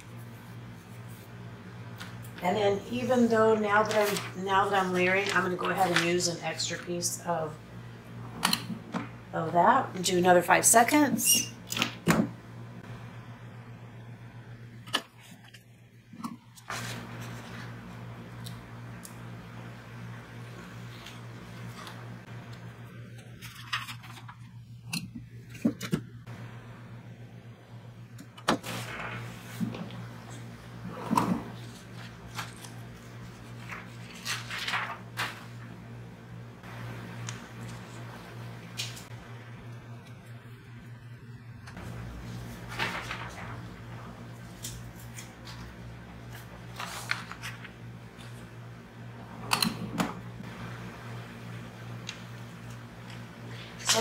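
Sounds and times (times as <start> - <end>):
steady low hum: 0.0 - 54.0
sheet rustling and crinkling: 3.3 - 6.8, 28.6 - 35.7, 41.8 - 45.7.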